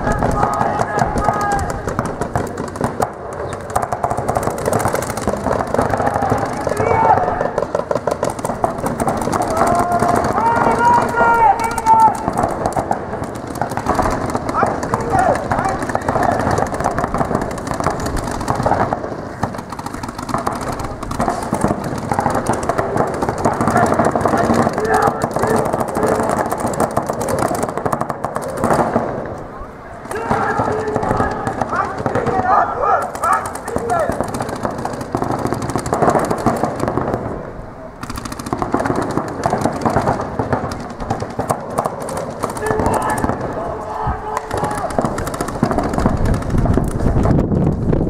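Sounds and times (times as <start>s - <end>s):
paintball guns firing rapidly: 0.0s - 48.0s.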